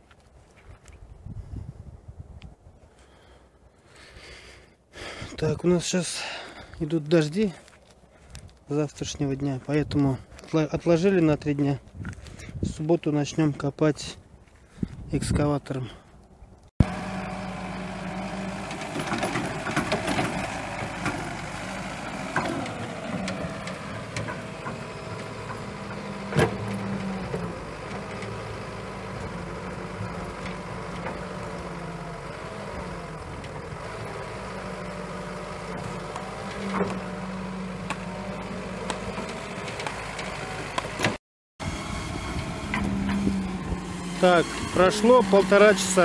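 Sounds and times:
excavator diesel engine: 0:16.8 - 0:46.0.

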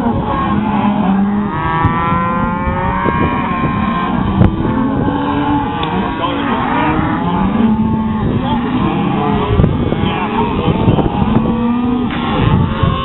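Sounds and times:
cattle mooing: 0:00.0 - 0:13.0
steady low rumble: 0:00.0 - 0:13.0.

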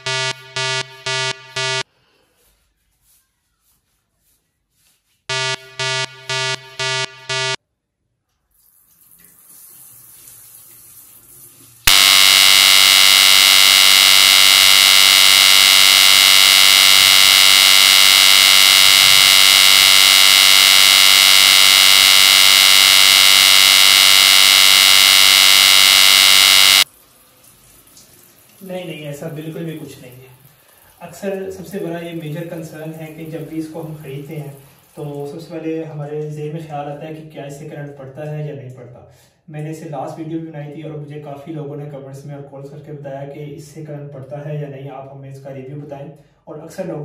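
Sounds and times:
loud steady buzzing tone: 0:00.0 - 0:01.8, 0:05.3 - 0:07.6, 0:11.9 - 0:26.8
short electronic beeps: 0:00.0 - 0:01.8, 0:05.3 - 0:07.6, 0:11.9 - 0:26.8
water running from tap: 0:08.6 - 0:11.8, 0:26.9 - 0:28.7, 0:34.4 - 0:35.1.

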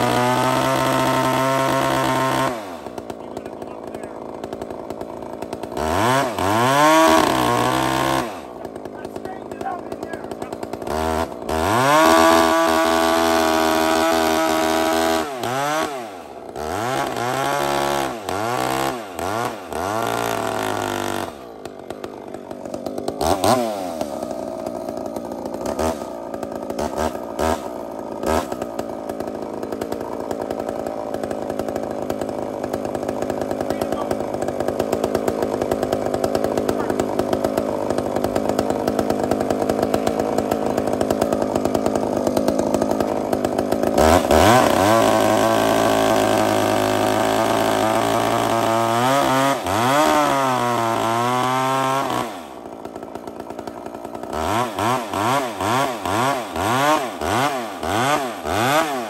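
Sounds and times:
chainsaw revving: 0:00.0 - 0:59.0
large chainsaw idling: 0:00.0 - 0:59.0.

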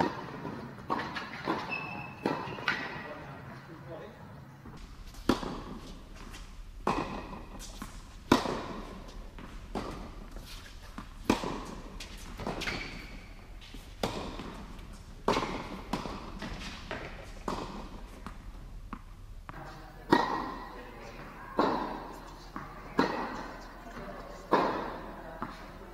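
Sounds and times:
tennis ball struck by racket: 0:00.0 - 0:03.0, 0:04.7 - 0:19.1, 0:20.1 - 0:20.8, 0:21.6 - 0:23.6, 0:24.5 - 0:25.6
shoe squeaks: 0:01.2 - 0:02.8, 0:12.4 - 0:13.5
ball bouncing on court: 0:04.8 - 0:10.4, 0:11.0 - 0:14.7, 0:15.3 - 0:20.7.

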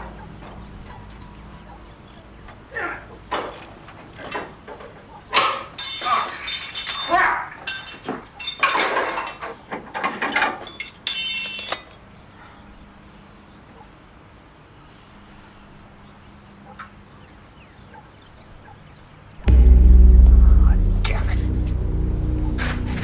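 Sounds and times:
metal tools clanking: 0:04.2 - 0:12.1
faint hum: 0:19.4 - 0:23.0
tape hiss: 0:19.4 - 0:23.0.

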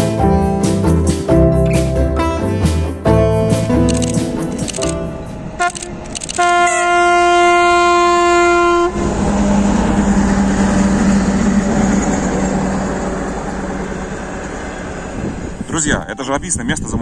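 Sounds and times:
train rumbling past: 0:03.6 - 0:17.0
locomotive horn blast: 0:05.3 - 0:09.9
diesel engine running: 0:08.9 - 0:15.7.

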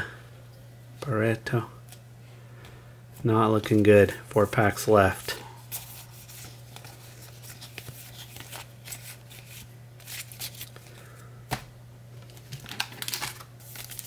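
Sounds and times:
steady low hum: 0:00.0 - 0:14.0
trading cards rustling: 0:04.5 - 0:11.0, 0:12.2 - 0:14.0.

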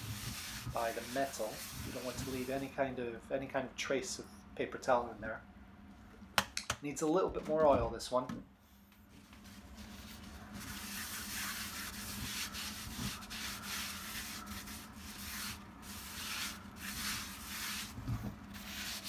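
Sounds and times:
paper towel wiping skillet: 0:00.0 - 0:02.7, 0:09.4 - 0:19.0.

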